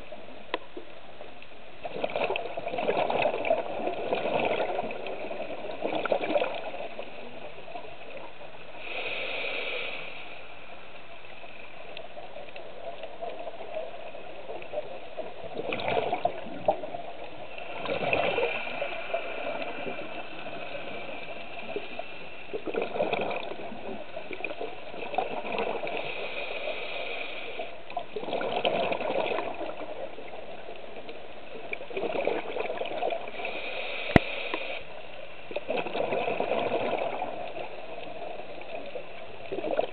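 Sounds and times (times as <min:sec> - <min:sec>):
steady underwater hiss: 0:00.0 - 0:39.9
exhaled bubbles gurgling: 0:01.8 - 0:09.7, 0:11.2 - 0:34.2, 0:35.0 - 0:39.9
diver inhaling through regulator: 0:08.8 - 0:10.6, 0:25.8 - 0:27.8, 0:33.3 - 0:34.9.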